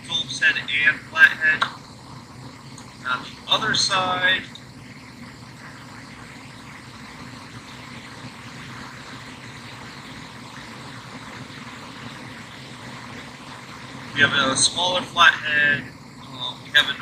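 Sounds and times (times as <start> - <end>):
outdoor hum and hiss: 0.0 - 17.0.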